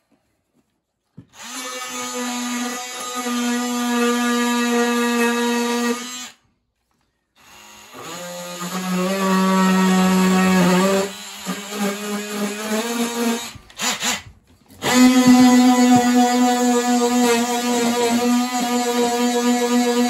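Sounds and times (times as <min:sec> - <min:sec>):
trim router cutting wood: 0:07.4 - 0:14.2, 0:14.8 - 0:20.0.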